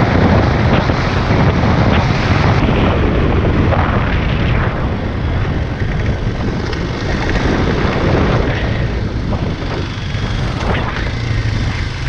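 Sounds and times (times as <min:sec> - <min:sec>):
motorcycle engine: 0:00.0 - 0:12.0
wind buffeting microphone: 0:00.0 - 0:12.0.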